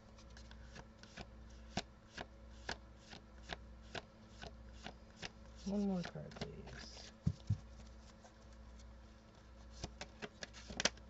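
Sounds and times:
cards being shuffled: 0:00.1 - 0:08.9, 0:09.6 - 0:11.0.

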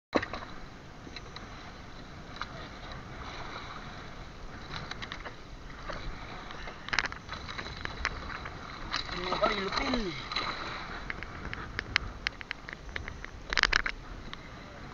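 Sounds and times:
wind and water rushing: 0:00.1 - 0:14.9.

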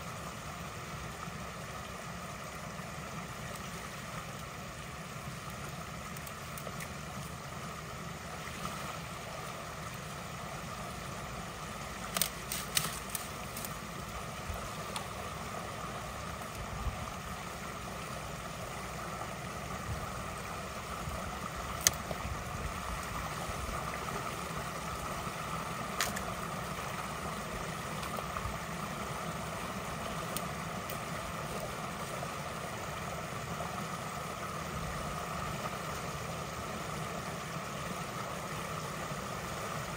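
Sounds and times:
creek water running: 0:00.0 - 0:39.9.

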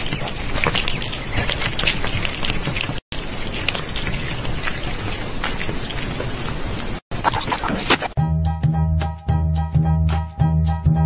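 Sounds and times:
crackly pattering noise: 0:00.0 - 0:08.2.

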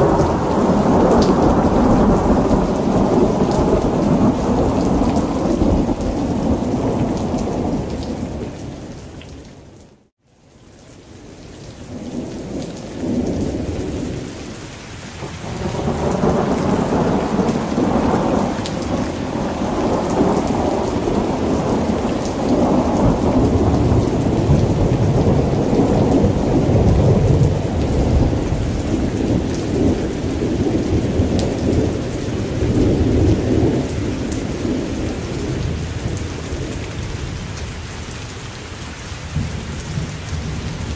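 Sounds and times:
rolling thunder: 0:00.0 - 0:08.6, 0:15.2 - 0:37.4
steady rain: 0:00.0 - 0:40.9.

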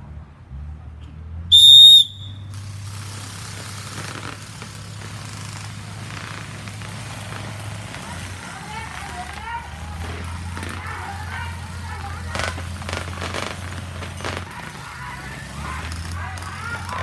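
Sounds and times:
referee's whistle blast: 0:01.5 - 0:02.5.

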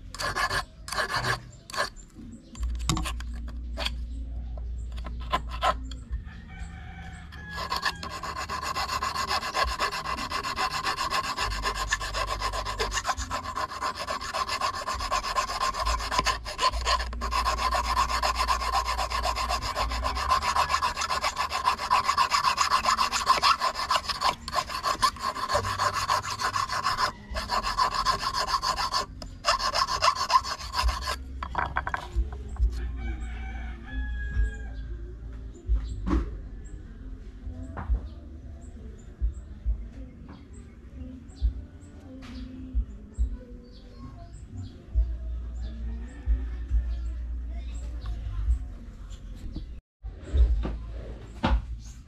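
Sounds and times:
hand file rasping on steel wire: 0:00.0 - 0:02.0, 0:04.9 - 0:06.0, 0:07.1 - 0:32.8.

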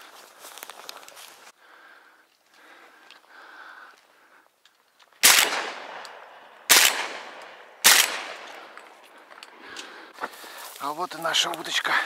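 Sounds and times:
shotgun shots with echo: 0:05.2 - 0:08.7.

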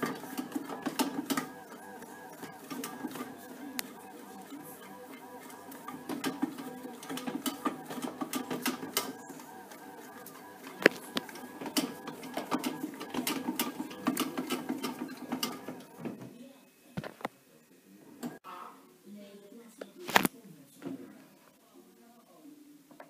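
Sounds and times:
bread maker motor hum: 0:00.0 - 0:16.3.

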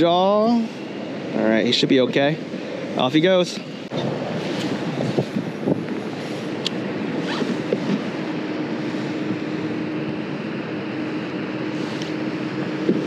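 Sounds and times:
wind noise on microphone: 0:03.9 - 0:10.3.

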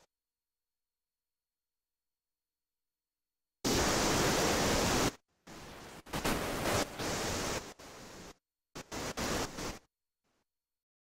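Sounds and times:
hiss-like noise: 0:03.6 - 0:09.9.

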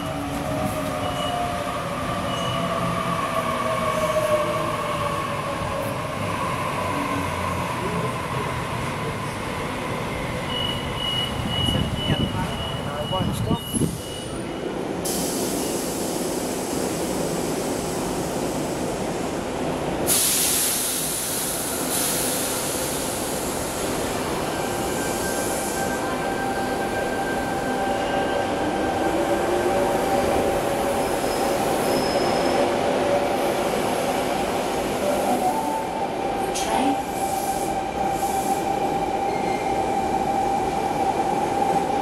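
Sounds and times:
air hiss: 0:15.0 - 0:19.2, 0:20.0 - 0:24.1.

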